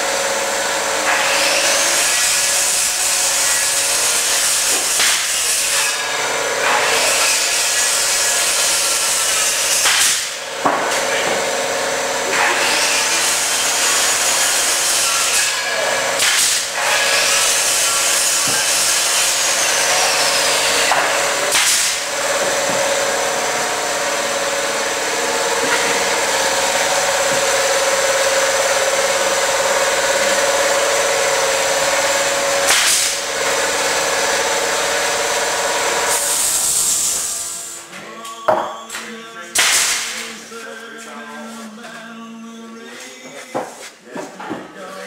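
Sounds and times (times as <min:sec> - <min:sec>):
machine hiss and hum: 0:00.0 - 0:37.9.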